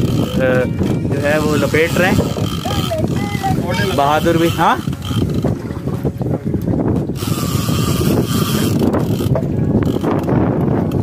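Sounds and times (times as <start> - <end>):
fishing reel clicking: 0.0 - 5.5, 7.1 - 11.0
boat engine rumble: 0.0 - 11.0
wind: 0.0 - 11.0.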